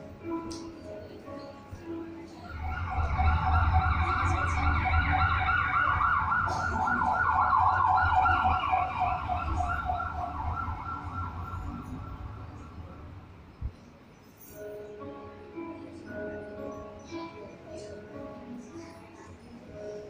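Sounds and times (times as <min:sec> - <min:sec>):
siren wailing over loudspeakers: 0:02.4 - 0:13.2.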